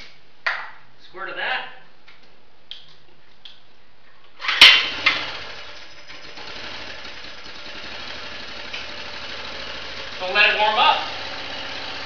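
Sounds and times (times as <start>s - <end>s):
generator engine running: 4.8s - 12.0s.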